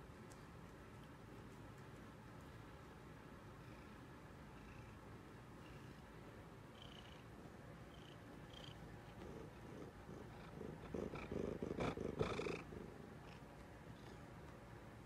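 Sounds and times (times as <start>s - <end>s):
cat purring: 7.9s - 14.6s.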